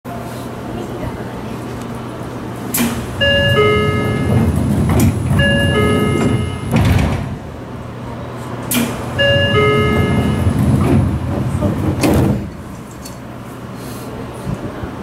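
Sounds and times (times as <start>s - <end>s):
train car low hum: 0.1s - 15.0s
train doors puffing air: 2.6s - 3.2s, 8.4s - 13.0s
two-note electronic chime: 5.4s - 6.7s, 9.2s - 10.4s.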